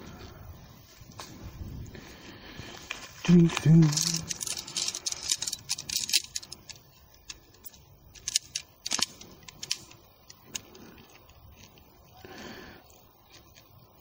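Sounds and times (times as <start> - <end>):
tent poles clicking together: 2.8 - 11.9, 13.2 - 14.0.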